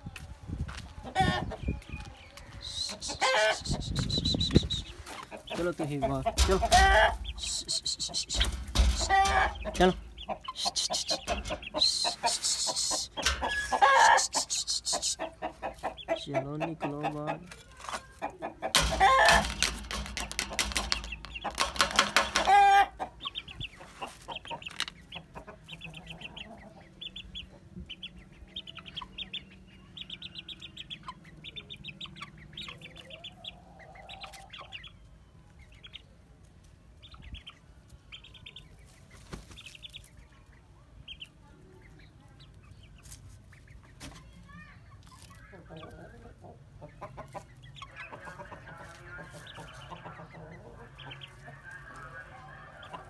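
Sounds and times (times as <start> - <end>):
chickens clucking: 0.0 - 53.0
chickens squawking and flapping: 0.2 - 29.6, 30.9 - 34.8, 38.5 - 40.7, 42.6 - 53.0
short high chirps: 7.3 - 8.6, 10.5 - 15.2.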